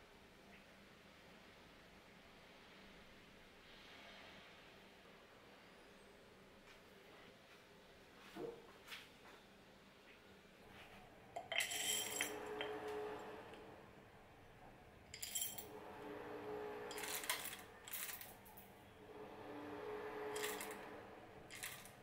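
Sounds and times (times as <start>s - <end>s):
glassware and dishes clinking: 11.4s - 12.8s, 15.2s - 15.6s.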